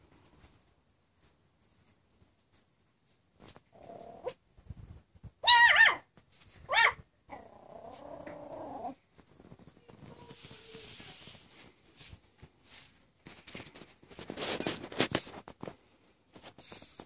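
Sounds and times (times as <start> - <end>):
puppy yapping: 5.4 - 6.1, 6.7 - 7.5
puppy growling: 7.3 - 9.0.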